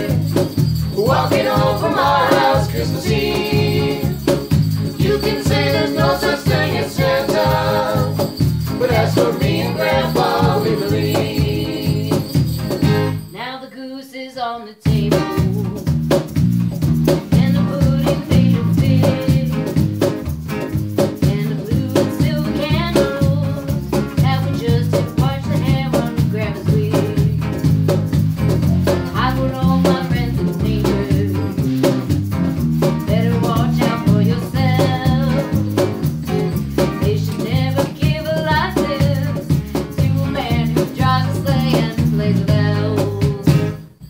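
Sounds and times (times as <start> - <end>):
voices singing: 0.0 - 12.5, 17.4 - 19.7, 33.2 - 35.6, 37.1 - 43.8
strummed acoustic guitar: 0.0 - 13.4, 15.0 - 44.0
electric guitar: 14.9 - 44.0.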